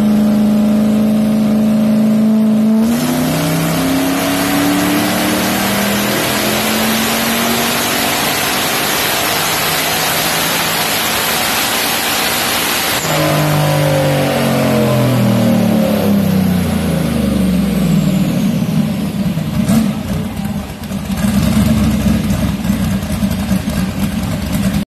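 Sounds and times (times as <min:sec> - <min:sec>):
car engine revving at full throttle: 0:00.0 - 0:24.8
engine idling loudly: 0:18.9 - 0:24.8.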